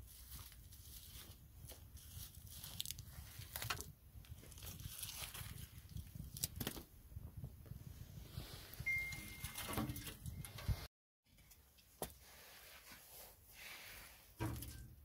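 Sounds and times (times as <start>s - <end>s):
wood shavings rustling: 0.0s - 5.7s.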